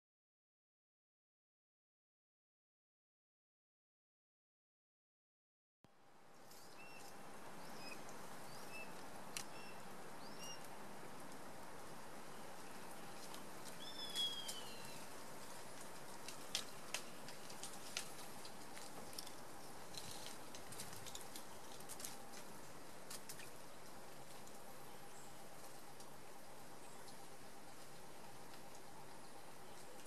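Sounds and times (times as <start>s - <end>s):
bird chirps: 6.6s - 10.7s, 13.8s - 15.1s.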